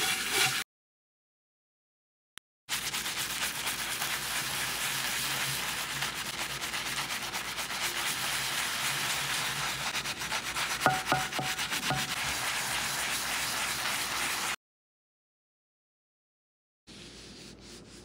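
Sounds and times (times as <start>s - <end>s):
brush scrubbing metal pan: 0.0s - 0.6s, 2.7s - 14.6s.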